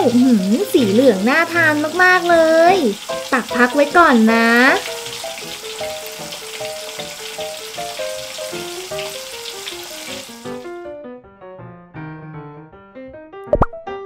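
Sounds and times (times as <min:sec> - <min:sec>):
hot oil sizzling: 0:00.0 - 0:10.8.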